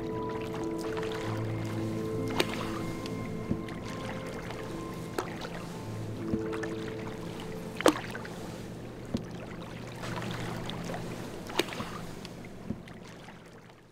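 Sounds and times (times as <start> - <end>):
paddle strokes with water splashing: 0.0 - 13.9
wooden paddle knocking canoe: 0.4 - 8.3, 9.0 - 13.5.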